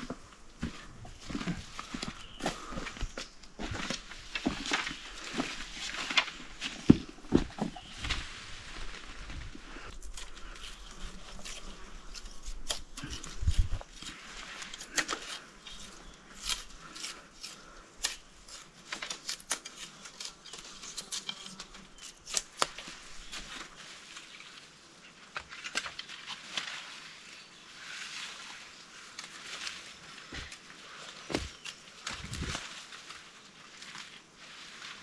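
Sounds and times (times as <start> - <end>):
bamboo leaves rustling: 0.0 - 35.0
bamboo canes snapping: 16.3 - 23.7, 25.3 - 26.7.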